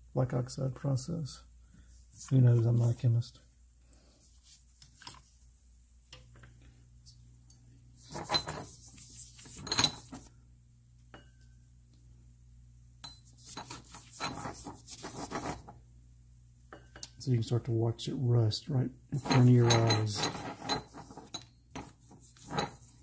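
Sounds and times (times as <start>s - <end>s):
low steady hum: 0.0s - 23.0s
toothbrush brushing metal: 8.0s - 10.3s, 13.2s - 15.7s, 19.2s - 23.0s
metal pipe fittings clinking: 19.2s - 21.5s.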